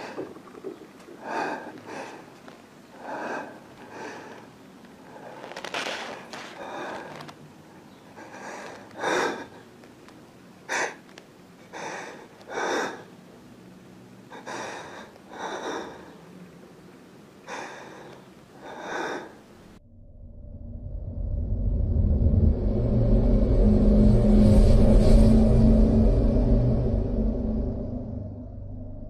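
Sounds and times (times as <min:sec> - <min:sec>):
person breathing hard: 0:01.1 - 0:09.7, 0:10.7 - 0:11.0, 0:11.6 - 0:13.2, 0:14.3 - 0:16.2, 0:17.4 - 0:19.4.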